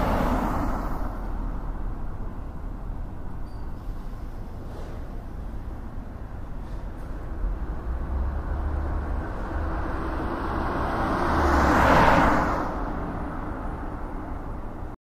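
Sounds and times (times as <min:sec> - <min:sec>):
car passing by: 0:00.0 - 0:01.7, 0:06.6 - 0:14.6
traffic rumble: 0:00.0 - 0:15.0.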